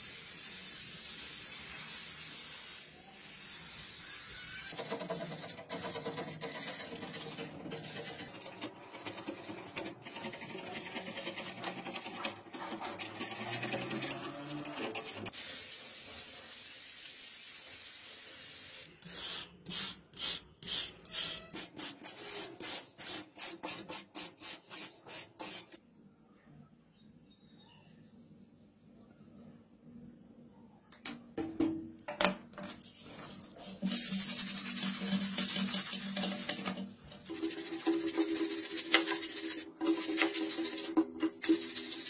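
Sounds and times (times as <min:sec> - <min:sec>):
liquid spraying hiss: 0:00.0 - 0:04.7, 0:15.4 - 0:25.8
metal tool scraping rust: 0:04.6 - 0:15.3, 0:32.7 - 0:42.0.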